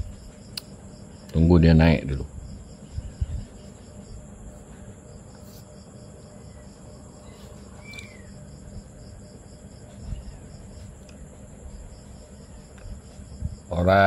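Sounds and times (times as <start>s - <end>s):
insects chirping: 0.0s - 14.0s
low hum: 1.9s - 13.9s.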